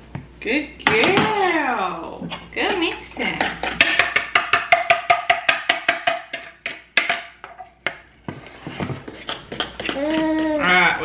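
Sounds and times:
utensil knocking a wooden bowl: 0:02.6 - 0:08.0, 0:09.3 - 0:10.9.

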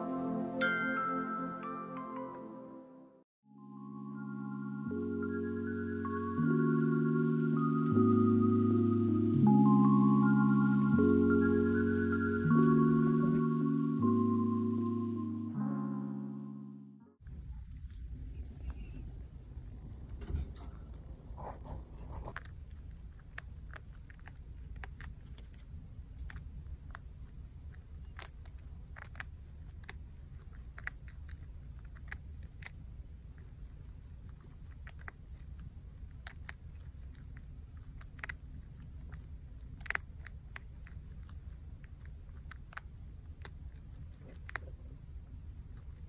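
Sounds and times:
low background rumble: 0:17.2 - 0:46.0
chinchilla nibbling leaves: 0:17.3 - 0:46.0.

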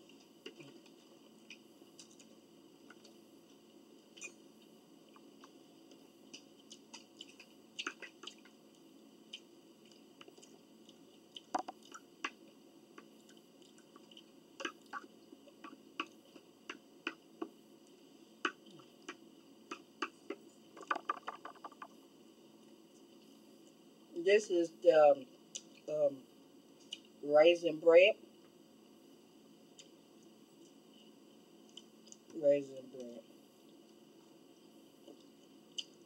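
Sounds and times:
people chewing and eating: 0:00.0 - 0:22.0, 0:26.7 - 0:27.2, 0:29.6 - 0:32.4, 0:33.5 - 0:36.0
small sharp mouth clicks: 0:35.7 - 0:36.0.

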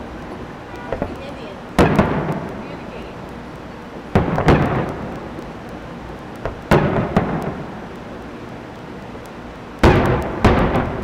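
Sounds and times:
firework shells booming: 0:00.6 - 0:11.0
small firework pop: 0:06.4 - 0:08.0, 0:09.8 - 0:11.0.

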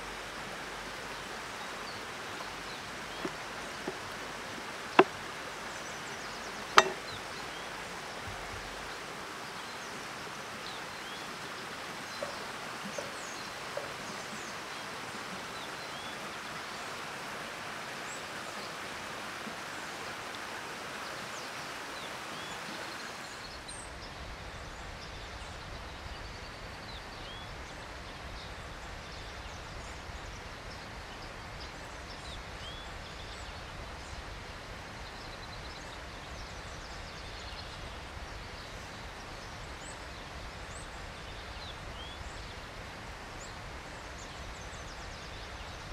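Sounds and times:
small birds chirping: 0:00.0 - 0:17.1
knife knocking on wooden board: 0:06.8 - 0:07.1.

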